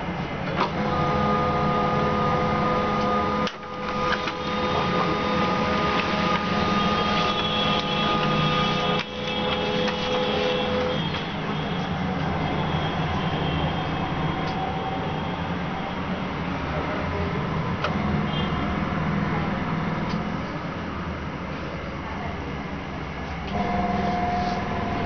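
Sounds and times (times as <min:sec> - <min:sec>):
electric machine whirring hum: 0:00.6 - 0:16.4, 0:23.5 - 0:25.0.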